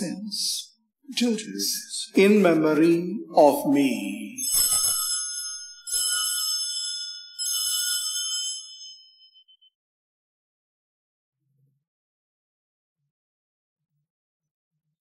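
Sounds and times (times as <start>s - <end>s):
altar bells ringing: 4.2s - 9.6s.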